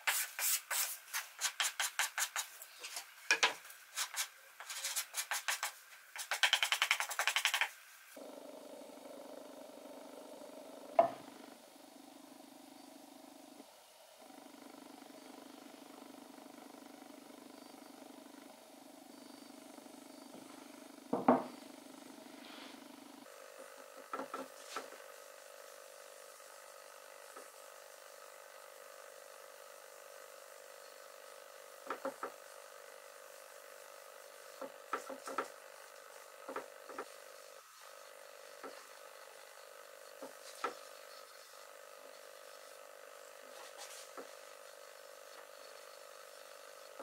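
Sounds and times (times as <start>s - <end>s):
sanding block rasping on wood: 0.0s - 2.5s, 4.0s - 7.7s
steady hum: 0.0s - 47.0s.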